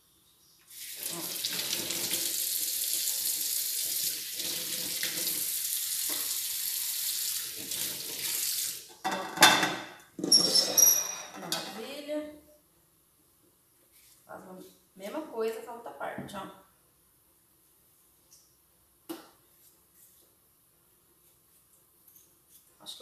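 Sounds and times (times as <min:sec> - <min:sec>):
tap running into sink: 0:06.0 - 0:06.4
kitchenware clattering: 0:09.0 - 0:11.9.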